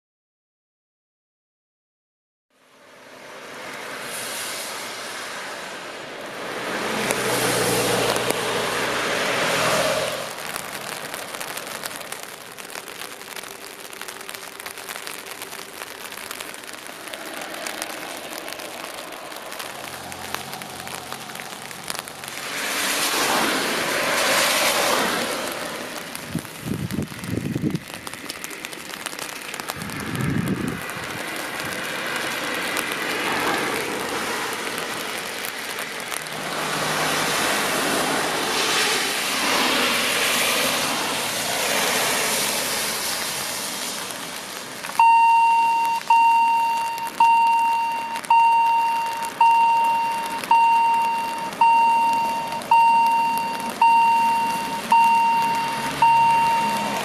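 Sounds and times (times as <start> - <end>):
rain hiss: 2.6 - 57.0
traffic on a wet road: 2.6 - 57.0
level crossing warning bell: 45.0 - 57.0.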